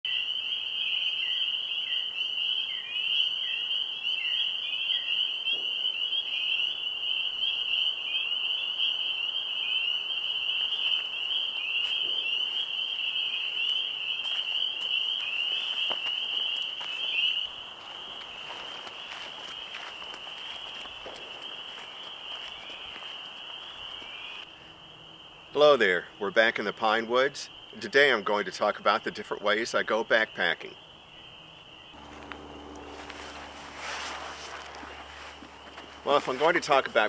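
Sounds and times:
frogs calling: 0.1 - 37.0.

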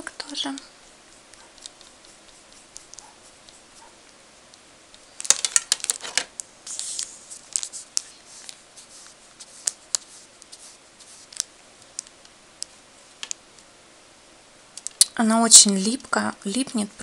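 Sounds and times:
brush scratchy hiss: 0.2 - 4.0, 6.6 - 11.4
brush strokes on paper: 0.3 - 4.0, 6.7 - 11.4.

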